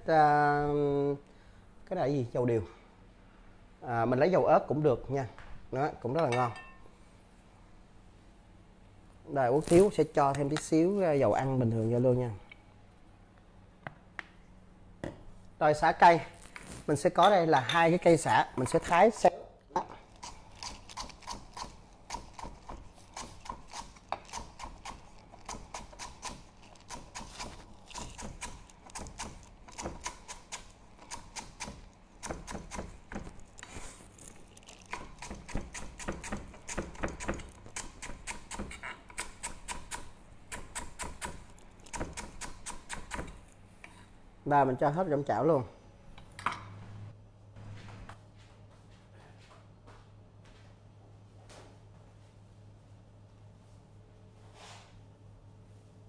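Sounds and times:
steady low hum: 0.0s - 56.0s
knife chopping on wooden board: 20.6s - 30.5s, 31.4s - 33.4s.

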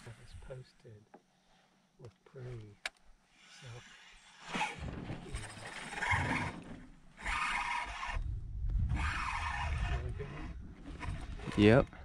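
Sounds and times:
fishing reel being cranked: 5.3s - 6.6s, 7.2s - 8.3s, 8.9s - 11.8s
wind rumble on microphone: 7.9s - 12.0s.

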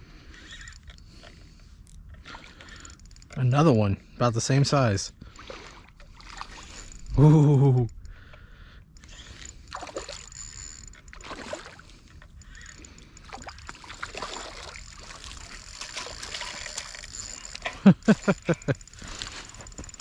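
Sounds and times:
water sloshing and splashing: 2.0s - 3.5s, 5.3s - 7.1s, 9.2s - 17.9s.

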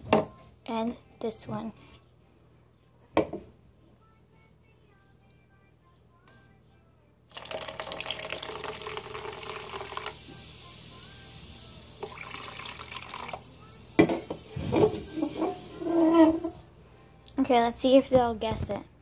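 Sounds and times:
can knocked onto wooden table: 3.2s - 3.5s, 14.0s - 15.5s
soda pouring into cup: 7.3s - 16.7s
soda fizzing: 7.3s - 16.8s.

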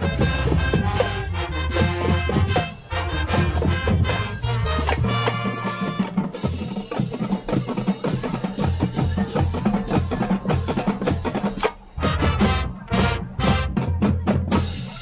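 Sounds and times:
brass chord: 0.0s - 6.5s, 12.0s - 14.0s
marching bass drum notes: 0.0s - 15.0s
snare and tenor drums: 0.0s - 15.0s.

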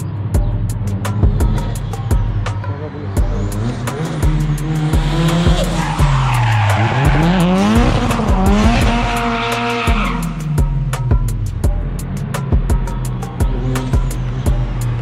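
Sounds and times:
car engine revving: 0.0s - 15.0s
tyres squealing: 0.8s - 10.5s.

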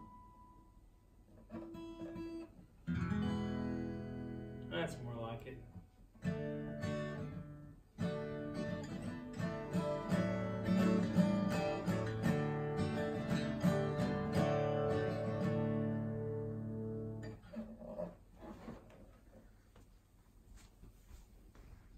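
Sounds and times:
acoustic guitar chords: 0.0s - 17.4s.

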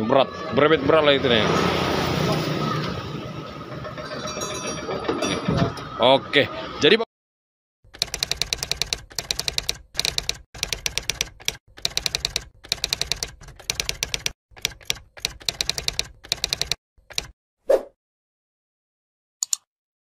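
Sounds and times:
typewriter key clacks: 8.0s - 17.3s.

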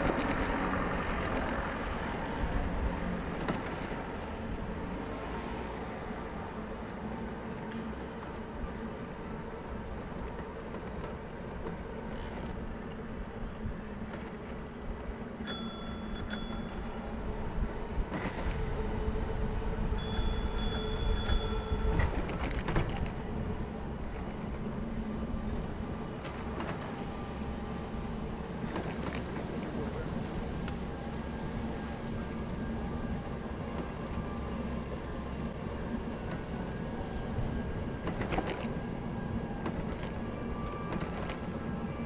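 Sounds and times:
rumble of wind and tyres: 0.0s - 42.0s
bicycle bell ringing: 15.4s - 17.0s, 20.0s - 22.2s.

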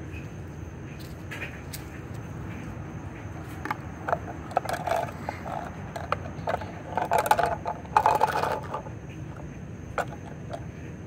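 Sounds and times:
plastic toy pieces clattering on concrete: 3.6s - 10.6s.

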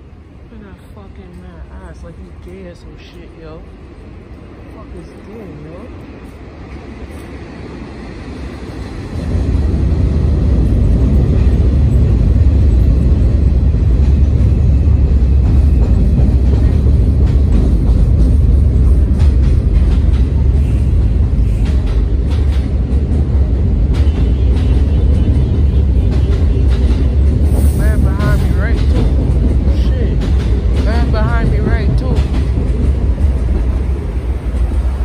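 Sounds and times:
train rumble on steel bridge: 0.0s - 35.0s
train wheels clattering: 10.4s - 35.0s.

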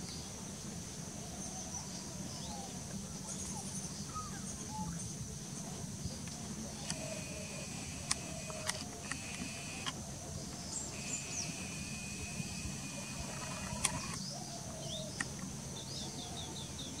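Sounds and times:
sharp clicks: 6.3s - 10.0s, 10.8s - 14.2s
bird chirps: 10.7s - 15.2s.

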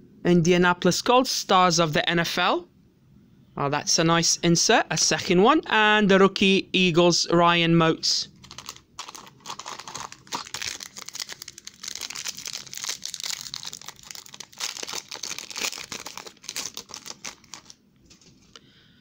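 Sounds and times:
foil wrapper tearing and crinkling: 8.4s - 17.8s.

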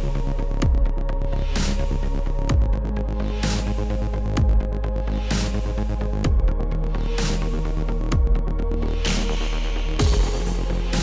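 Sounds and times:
electronic music with beat: 0.0s - 11.0s
deep bass hit: 10.0s - 11.0s.

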